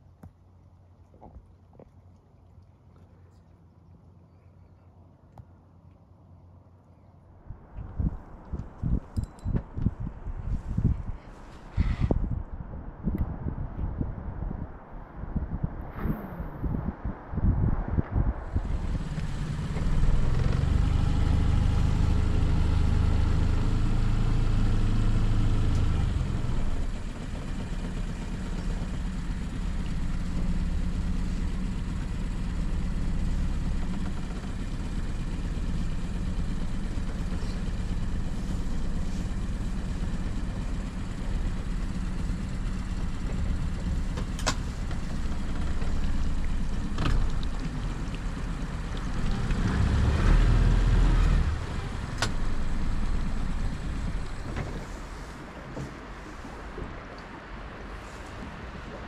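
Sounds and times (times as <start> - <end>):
outboard motor running: 18.6 - 55.9.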